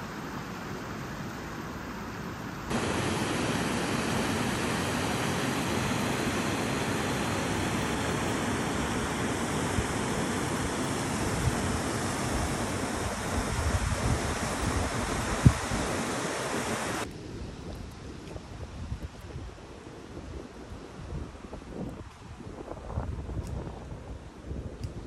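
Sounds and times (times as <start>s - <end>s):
water rushing over weir: 2.7s - 17.1s.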